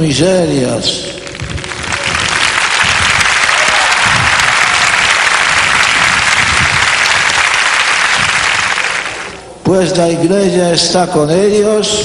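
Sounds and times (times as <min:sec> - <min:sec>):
crowd applauding: 0:01.2 - 0:09.4.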